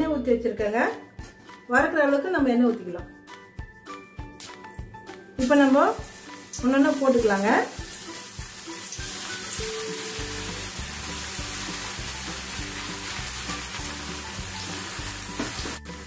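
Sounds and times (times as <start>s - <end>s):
background music: 0.0s - 16.0s
potato slices sizzling in oil: 5.4s - 16.0s.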